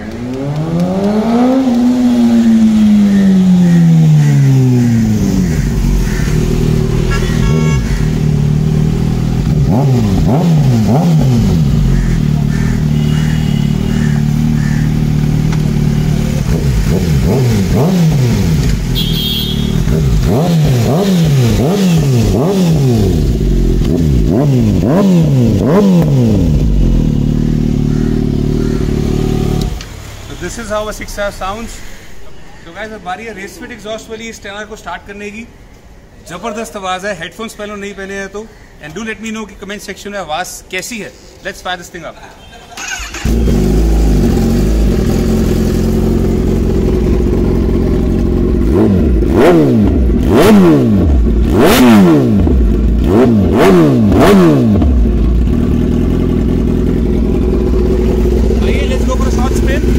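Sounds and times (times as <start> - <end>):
motorcycle engine idling and revving: 0.0 - 32.1, 42.7 - 59.9.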